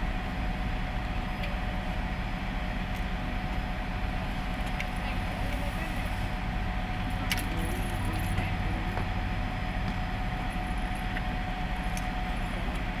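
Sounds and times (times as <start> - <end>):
faint constant hum: 0.0 - 13.0
low mechanical rumble: 0.0 - 13.0.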